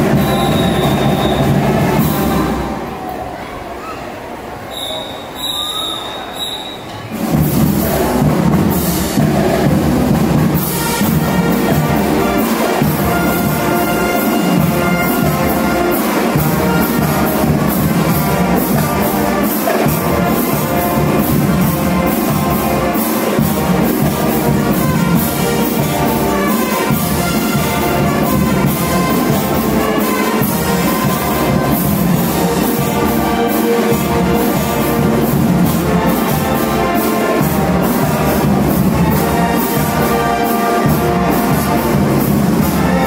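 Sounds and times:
brass marching band playing: 0.0 - 3.0, 4.8 - 43.0
drums keeping a steady beat: 0.0 - 3.0, 6.8 - 43.0.

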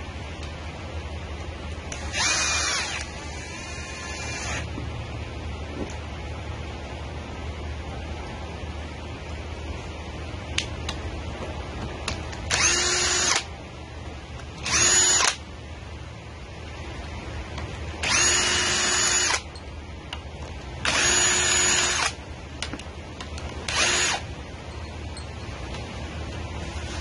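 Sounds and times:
power drill spinning: 1.9 - 4.7, 12.5 - 13.5, 14.6 - 15.4, 18.0 - 19.5, 20.8 - 22.2, 23.7 - 24.2.

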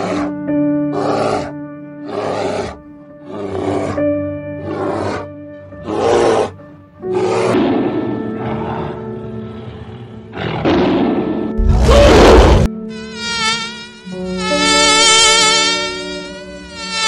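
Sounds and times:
animal growling: 0.0 - 4.0, 4.6 - 12.7
tiger roaring: 0.0 - 12.7
background music with held notes: 0.0 - 17.0
wavering insect-like buzz: 12.6 - 17.0.

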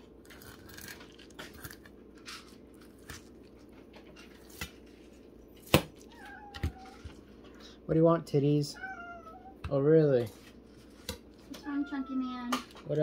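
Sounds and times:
cat meowing: 6.0 - 7.2, 8.7 - 9.7.

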